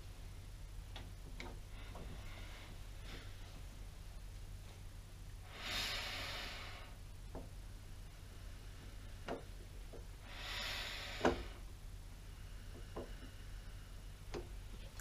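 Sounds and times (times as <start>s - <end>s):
breathy nasal exhales: 5.4s - 7.0s, 10.2s - 11.7s.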